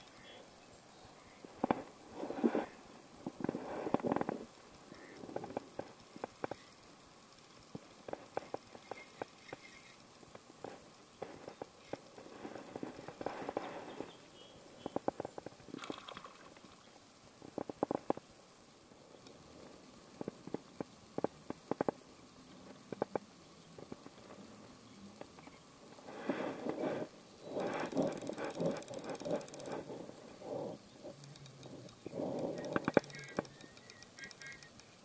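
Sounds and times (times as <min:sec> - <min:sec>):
sharp clicks and taps: 0:31.1 - 0:35.0.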